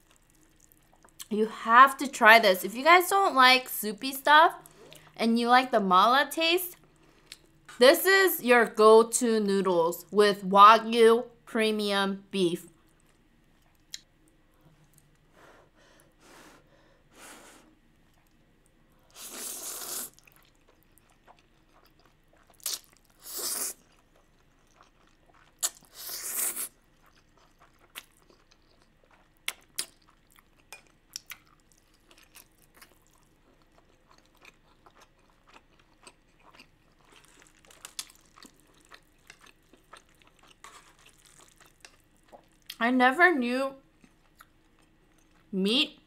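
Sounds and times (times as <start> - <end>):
slurping noodles: 19.2 - 20.3
wet chewing: 19.2 - 42.8.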